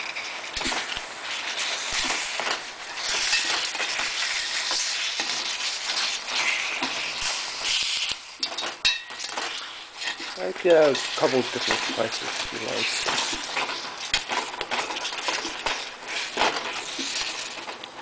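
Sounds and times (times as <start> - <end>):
chicken wings squelching in marinade: 0.2 - 18.0.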